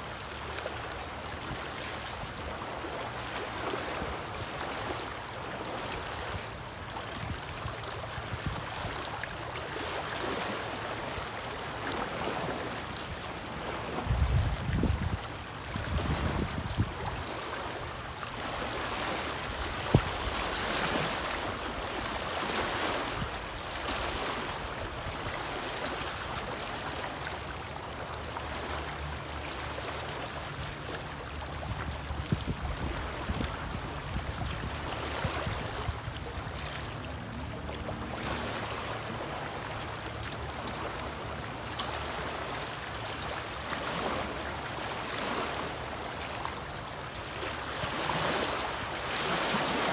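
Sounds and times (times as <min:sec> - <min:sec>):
waves lapping against rocky shore: 0:00.0 - 0:49.9
wind rumble on microphone: 0:06.1 - 0:09.3, 0:13.6 - 0:17.4, 0:19.3 - 0:25.4, 0:31.2 - 0:39.2.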